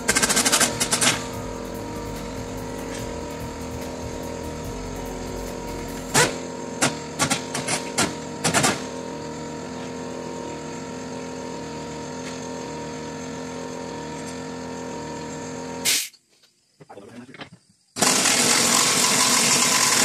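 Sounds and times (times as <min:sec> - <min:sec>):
steady background hum: 0:00.0 - 0:15.8.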